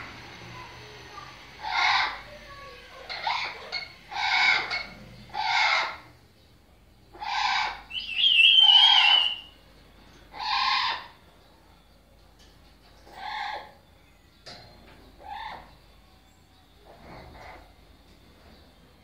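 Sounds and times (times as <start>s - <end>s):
parrot hoarse calls: 1.6s - 6.1s, 7.1s - 9.6s, 10.3s - 11.2s, 13.0s - 13.8s
wavering high whistle: 7.9s - 9.5s.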